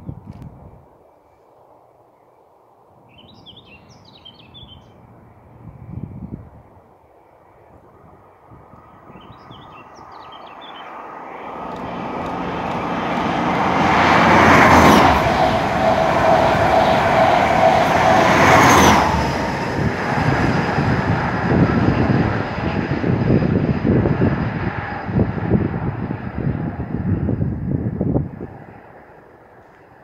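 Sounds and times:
diesel train passing: 10.7s - 27.4s.

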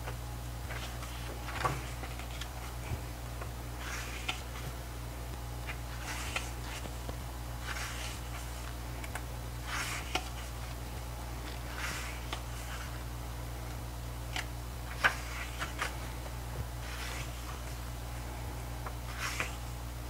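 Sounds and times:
paper pages turning: 0.0s - 4.8s, 5.6s - 10.8s, 11.4s - 13.0s, 14.3s - 17.8s, 18.8s - 19.7s
steady low hum: 0.0s - 20.0s.

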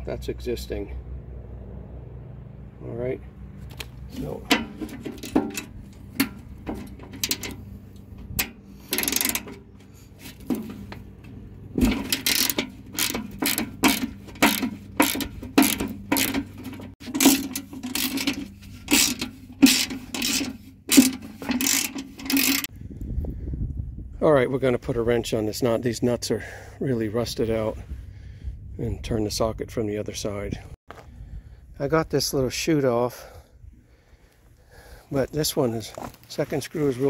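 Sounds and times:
socket ratchet clicking: 8.4s - 9.6s, 12.0s - 22.7s.

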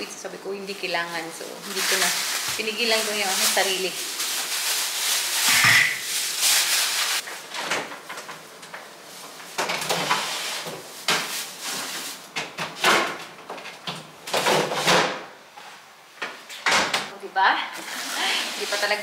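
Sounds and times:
plastic bags crinkling: 1.2s - 7.5s
items knocking and clattering: 12.3s - 15.3s.

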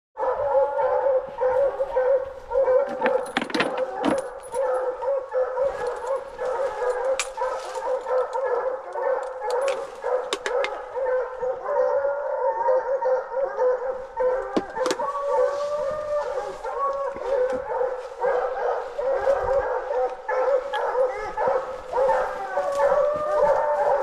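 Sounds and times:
hounds baying: 0.2s - 24.0s.

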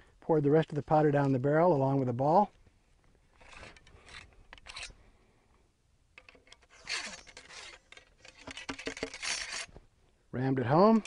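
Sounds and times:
ramrod scraping in barrel: 3.4s - 5.0s, 6.2s - 9.8s.

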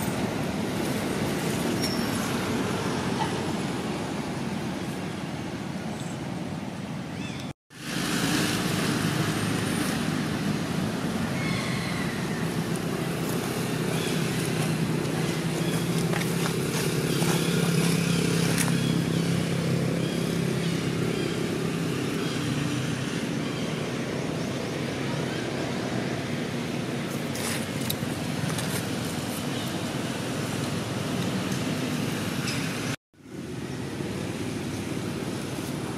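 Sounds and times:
vehicle engine running: 12.3s - 22.3s.

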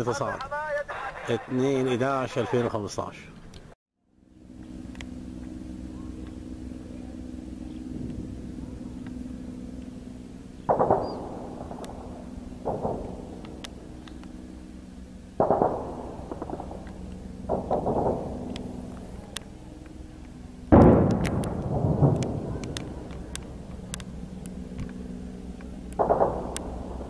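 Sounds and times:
jet aircraft droning overhead: 4.1s - 27.0s
sudden loud blasts: 10.6s - 14.2s, 15.4s - 19.6s, 20.6s - 24.1s.

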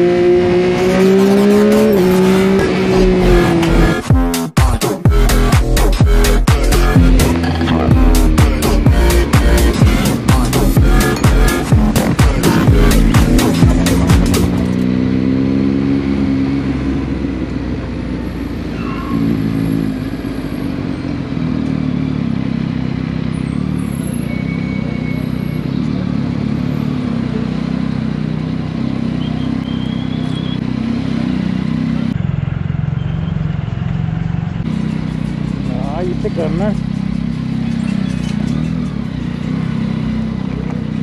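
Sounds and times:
wind: 0.0s - 4.0s, 13.5s - 41.0s
motorcycle engine running: 0.0s - 41.0s
street noise: 0.0s - 41.0s.

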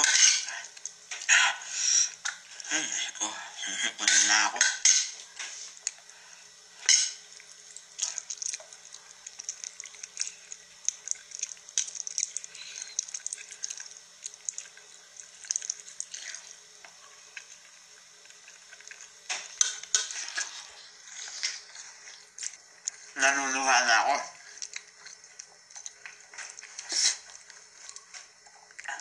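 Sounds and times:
person slurping and chewing noodles: 7.1s - 23.1s, 24.4s - 29.0s.

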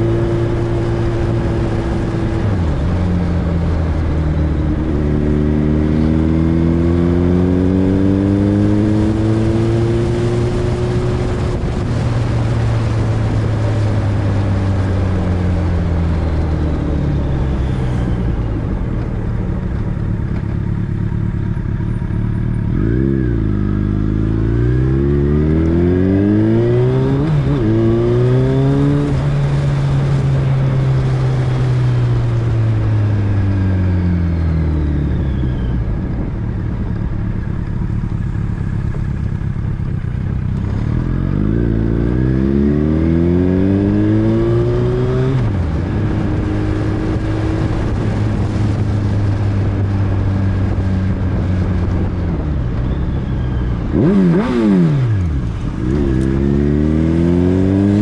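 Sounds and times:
wind and road noise: 0.0s - 58.0s
vehicle engine revving: 22.4s - 32.4s, 53.8s - 58.0s.

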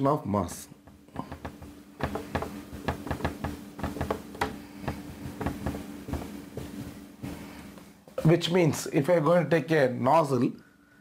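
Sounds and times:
steady low hum: 0.0s - 10.0s
marker writing on whiteboard: 0.9s - 6.8s.

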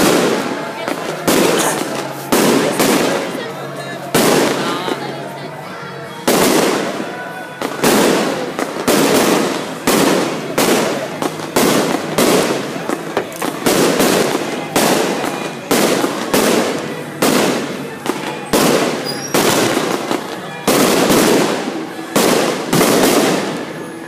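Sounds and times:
fireworks bangs: 0.0s - 5.4s, 6.1s - 24.0s.

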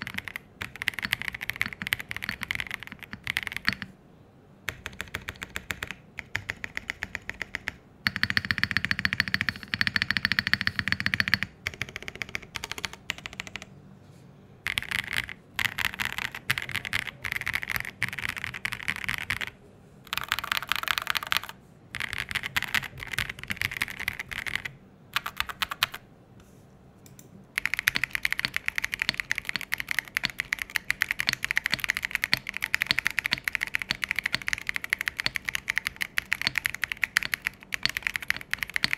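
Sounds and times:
mechanical keyboard typing: 0.0s - 3.9s, 4.7s - 13.7s, 14.7s - 26.0s, 27.6s - 38.9s.

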